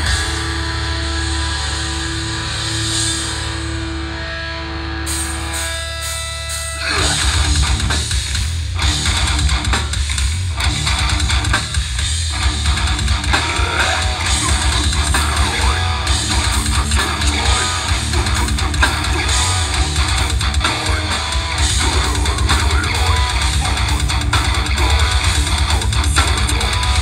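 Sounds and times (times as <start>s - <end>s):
bass guitar: 0.0s - 27.0s
distorted electric guitars: 0.0s - 27.0s
drums: 0.0s - 27.0s
rapid bass drum pulse: 7.1s - 27.0s.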